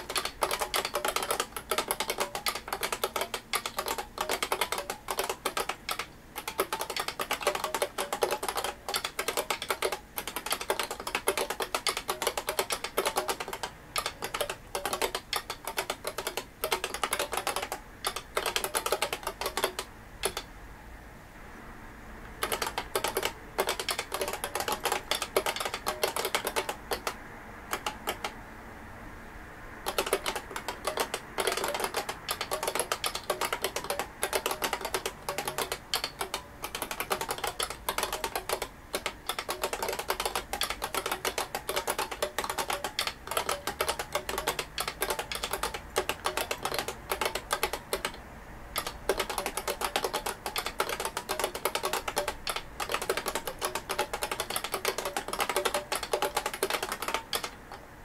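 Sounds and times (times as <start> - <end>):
keyboard key clicks: 0.0 - 20.5, 22.4 - 28.4, 29.8 - 48.2, 48.8 - 57.8.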